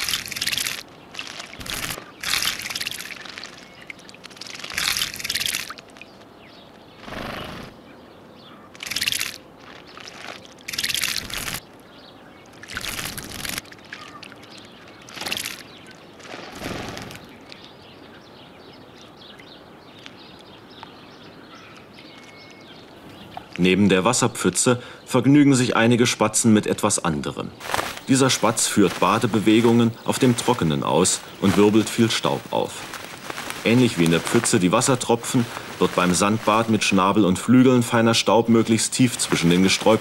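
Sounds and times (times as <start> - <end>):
bird splashing in puddle: 0.0 - 6.2, 8.7 - 11.6, 12.5 - 17.6, 27.6 - 40.0.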